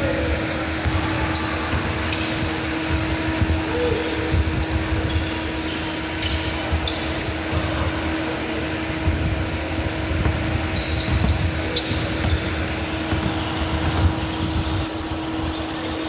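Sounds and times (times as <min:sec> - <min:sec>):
ventilation fans humming: 0:00.0 - 0:16.0
sneaker squeaks on hardwood: 0:00.6 - 0:03.4, 0:04.2 - 0:07.8, 0:10.2 - 0:16.0.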